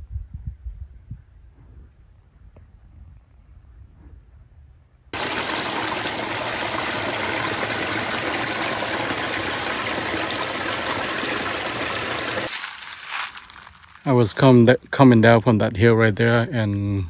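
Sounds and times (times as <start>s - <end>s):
creek rushing water: 5.2s - 12.5s.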